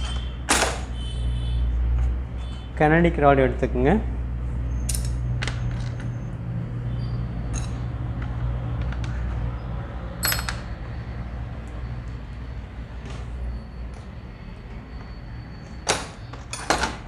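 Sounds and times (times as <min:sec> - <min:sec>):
small metal parts clinking: 0:04.8 - 0:06.1, 0:10.2 - 0:10.7.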